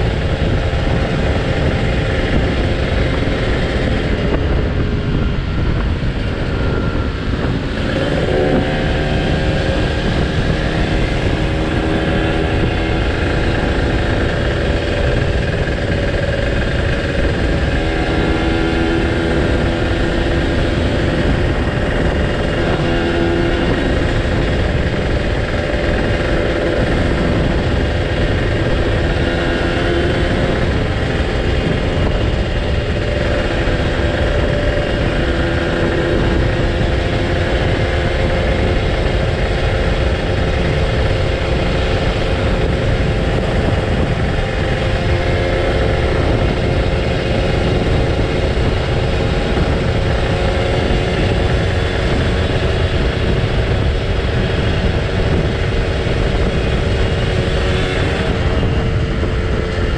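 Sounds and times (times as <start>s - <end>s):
motorcycle engine running: 0.0s - 59.9s
wind rushing over microphone: 0.0s - 59.9s.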